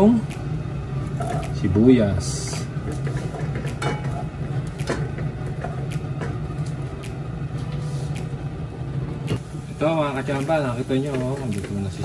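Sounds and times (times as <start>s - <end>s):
steady low hum: 0.0s - 12.0s
onion sizzling in butter: 9.4s - 12.0s.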